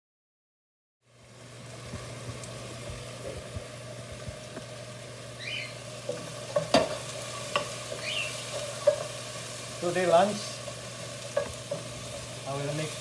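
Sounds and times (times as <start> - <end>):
onion sizzling in a frying pan: 1.0 - 13.0
wooden spoon knocking a pan: 6.0 - 9.1.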